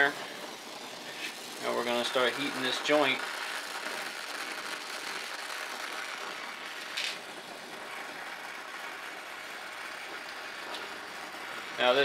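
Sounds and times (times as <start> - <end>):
torch flame hissing: 0.0 - 12.0.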